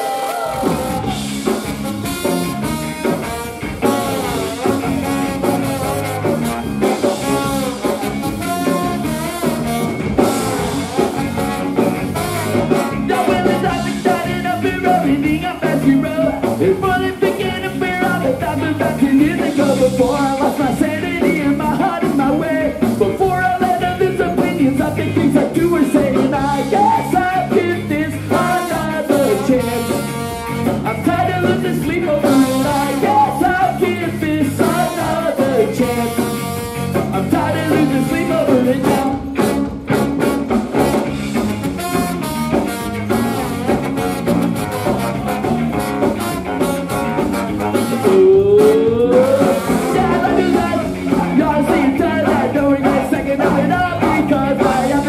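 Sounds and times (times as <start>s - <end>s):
baritone saxophone: 0.0s - 15.0s, 28.3s - 31.2s, 32.2s - 33.7s, 34.6s - 51.4s
drums: 0.0s - 55.0s
electric guitars: 0.0s - 55.0s
trombone: 0.5s - 14.2s, 28.3s - 31.0s, 32.2s - 33.4s, 34.6s - 51.4s
lead singer singing: 12.6s - 39.5s, 48.0s - 55.0s.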